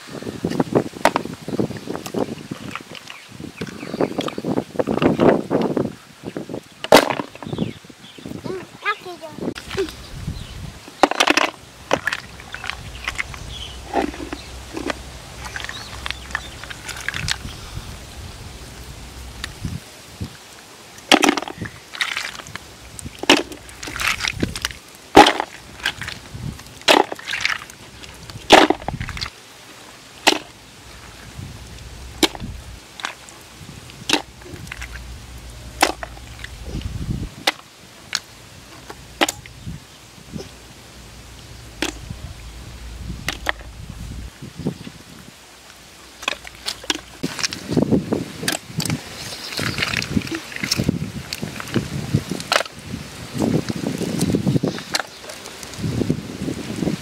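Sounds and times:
low rumble: 9.5s - 10.8s, 11.6s - 20.3s, 30.6s - 37.5s, 38.4s - 48.1s.

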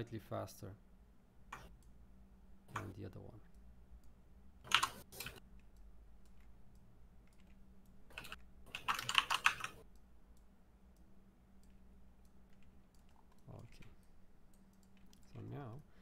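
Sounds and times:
faint low hum: 0.0s - 16.0s
computer keyboard keys clattering: 4.7s - 5.3s, 8.2s - 9.8s.

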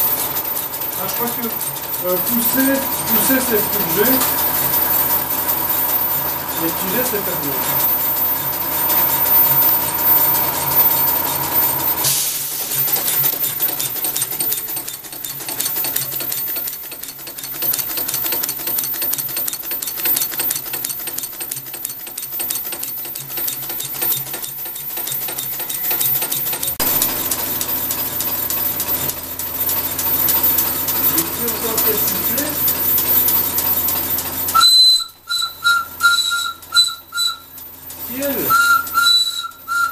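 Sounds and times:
clatter of rods and valve gear: 12.6s - 34.6s
steam locomotive exhaust beats: 34.6s - 37.6s, 38.5s - 39.9s.

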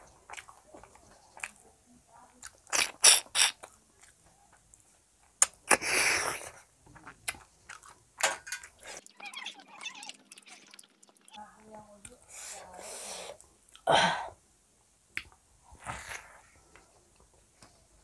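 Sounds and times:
wet chewing: 0.0s - 1.7s, 2.3s - 11.4s
lip smacks: 2.4s - 4.8s, 5.4s - 8.0s.

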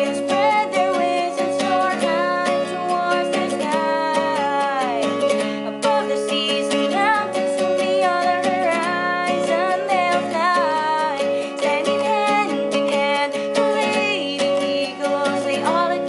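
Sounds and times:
acoustic guitar strumming: 0.0s - 16.0s
person singing: 0.0s - 16.0s.

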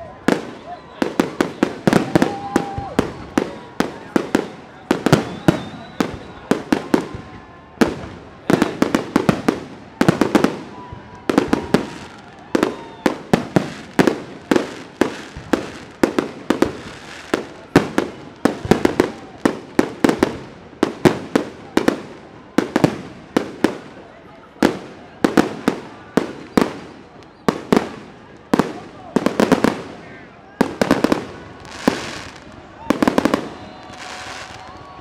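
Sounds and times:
fireworks bangs: 0.1s - 35.0s.

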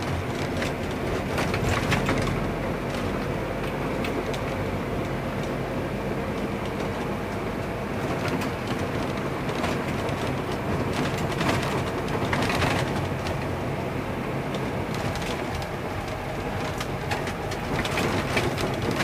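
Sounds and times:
car engine and tyre rumble: 0.0s - 19.0s
rattles and knocks over potholes: 0.0s - 19.0s.

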